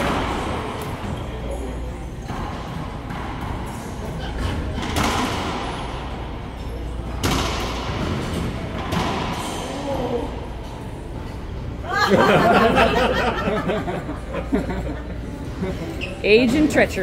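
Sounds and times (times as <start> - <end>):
racquetball hits echoing: 2.2 - 9.8.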